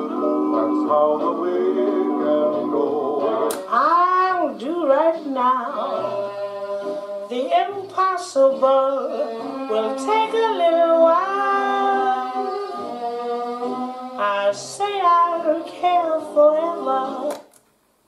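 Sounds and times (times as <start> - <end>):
vocal music from cassette: 0.0 - 17.5.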